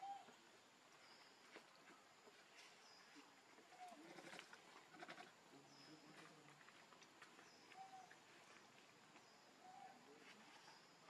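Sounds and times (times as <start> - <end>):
faint low voice: 3.7 - 6.8, 9.6 - 11.0
faint bird chirps: 7.4 - 8.2, 9.2 - 11.0.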